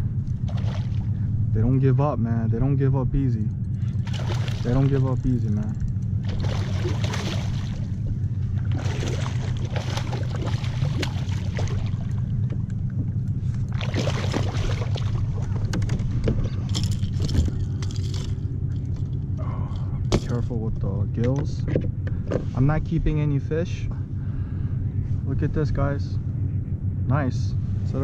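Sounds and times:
steady low rumble: 0.0s - 28.0s
fish thrashing and splashing: 0.4s - 1.1s, 4.0s - 5.0s, 6.2s - 12.6s, 13.5s - 18.3s.

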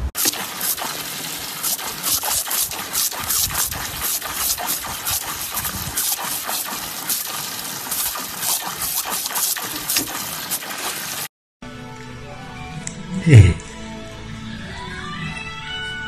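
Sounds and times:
water splashes: 0.1s - 11.3s
hose spray hissing: 0.2s - 11.3s.

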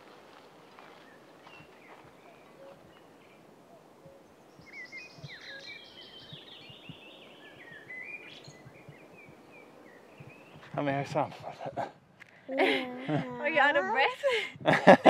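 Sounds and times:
songbird singing: 0.0s - 14.0s.

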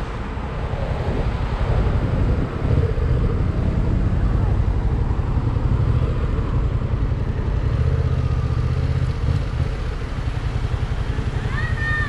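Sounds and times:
motorcycle engine running slowly: 4.2s - 12.0s.

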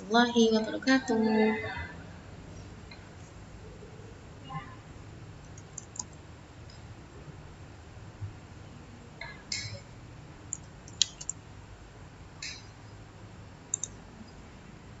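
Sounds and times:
computer mouse clicks: 5.5s - 6.2s, 10.5s - 11.4s, 13.7s - 14.0s.

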